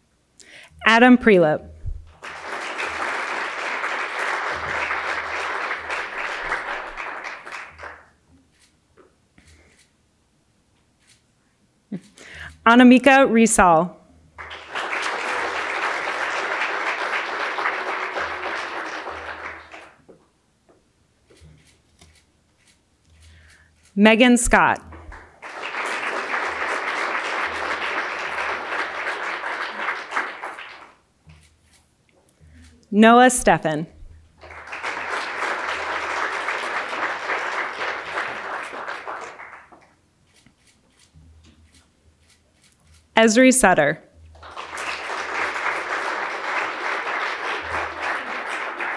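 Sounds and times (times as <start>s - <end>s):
audience applauding: 2.1s - 8.2s, 14.4s - 20.0s, 24.8s - 31.0s, 34.4s - 39.9s, 44.3s - 48.9s.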